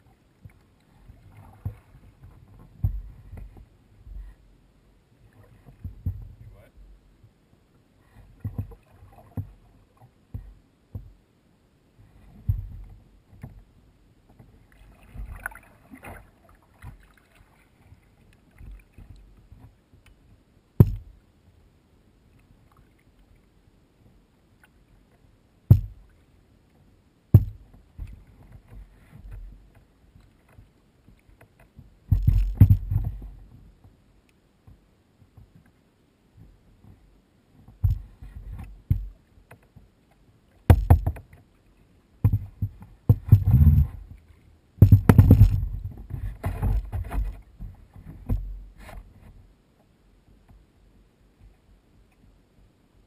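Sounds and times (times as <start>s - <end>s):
paddle splashing through water: 0.4s - 3.6s, 14.6s - 19.8s
sharp knocks: 20.8s - 21.1s, 25.7s - 26.0s, 27.3s - 27.6s, 32.1s - 33.1s, 40.7s - 41.2s, 44.8s - 45.7s.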